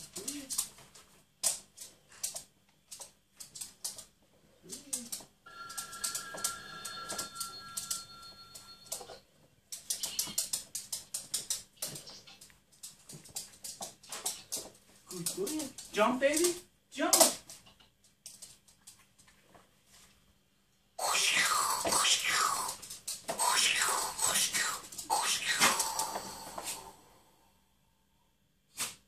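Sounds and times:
dog claws clicking on wooden floor: 0.0 - 4.2, 9.7 - 19.3.

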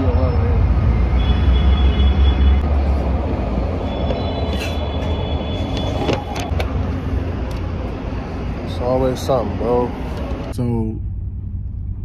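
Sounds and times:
low vehicle rumble: 4.8 - 12.0.

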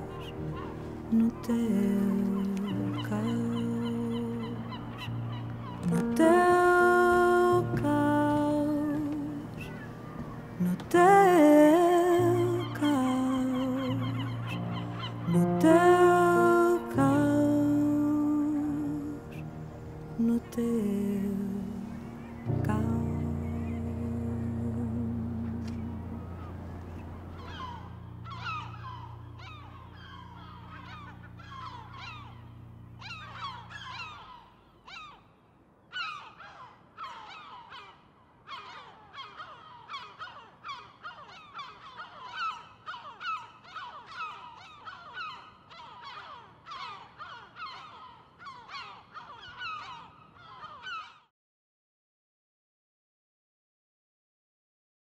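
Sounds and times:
flock of birds calling: 0.0 - 19.6, 20.2 - 35.2, 35.9 - 51.3
low sustained chord: 0.0 - 34.8.

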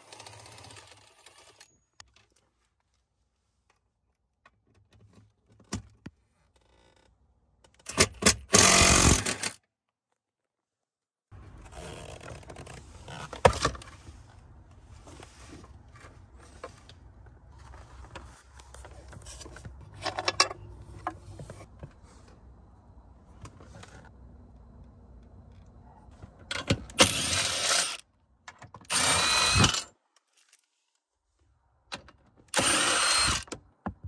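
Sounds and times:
cordless power tool running: 8.6 - 9.4, 28.9 - 29.8, 32.6 - 33.5.

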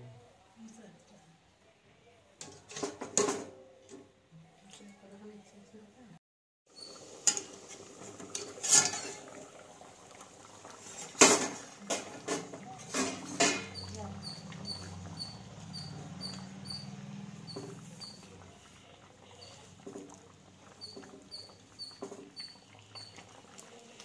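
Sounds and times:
metal clanking against pot: 2.4 - 4.0, 6.8 - 9.5, 10.8 - 16.9, 19.4 - 23.3
ladle stirring simmering curry: 6.8 - 24.0.

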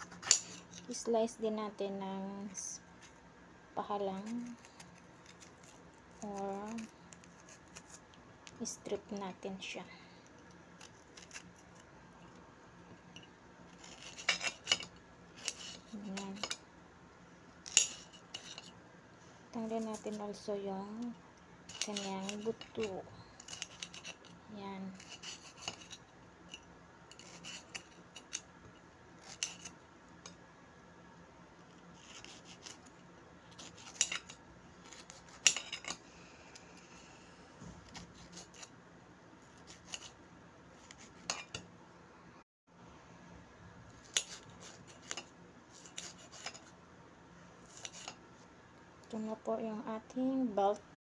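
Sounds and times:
knife cutting pepper: 0.0 - 1.4, 3.8 - 9.3, 10.2 - 11.9, 13.7 - 16.6, 19.6 - 21.1, 21.7 - 28.5, 29.2 - 30.4, 31.7 - 36.9, 37.7 - 38.8, 39.4 - 40.2, 40.8 - 41.6, 44.0 - 46.7, 47.6 - 48.2.

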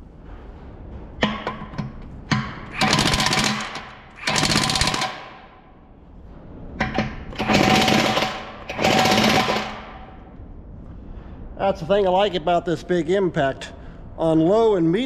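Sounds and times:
impact wrench hammering: 1.2 - 5.5, 6.8 - 10.1.

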